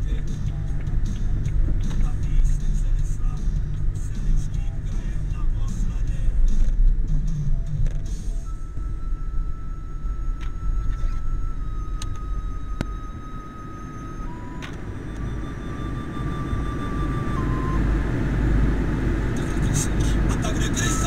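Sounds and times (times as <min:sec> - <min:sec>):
car engine rumble inside cabin: 0:00.0 - 0:21.0
thin high whine: 0:08.2 - 0:21.0.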